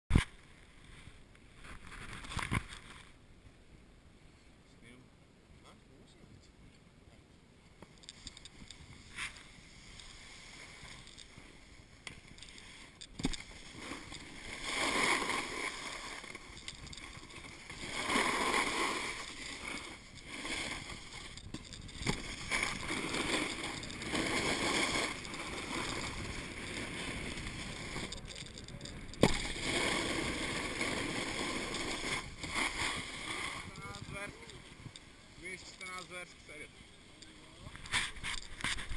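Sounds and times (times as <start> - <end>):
snowboard scraping on snow: 8.8 - 36.7.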